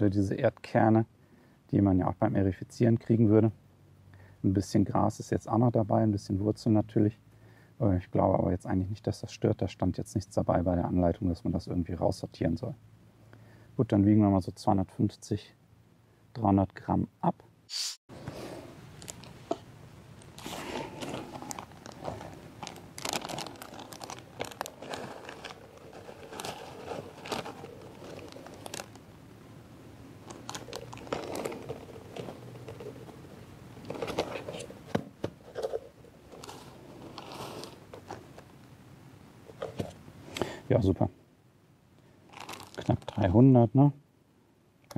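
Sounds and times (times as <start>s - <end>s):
plastic bag crinkling: 18.8s - 19.6s, 20.2s - 29.0s, 30.2s - 34.6s, 36.3s - 38.4s, 42.3s - 43.3s
soil crunching: 20.2s - 29.0s.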